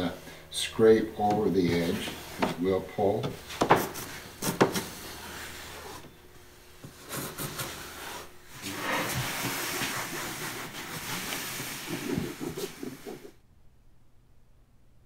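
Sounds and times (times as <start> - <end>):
fiberglass cloth rustling: 8.6 - 13.0.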